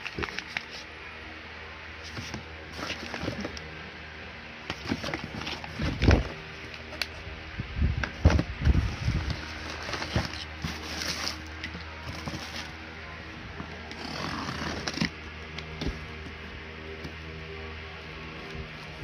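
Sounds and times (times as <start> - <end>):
cardboard and plastic rustling: 0.0 - 0.9, 2.0 - 3.6, 4.6 - 7.1, 8.0 - 17.2
steady low hum: 0.0 - 19.0
box cutter cutting tape: 13.9 - 15.2.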